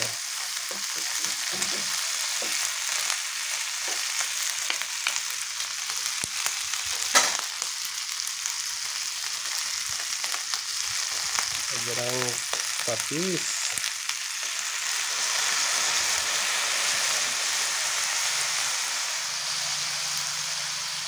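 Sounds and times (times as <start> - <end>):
food sizzling in hot oil: 0.0 - 21.0.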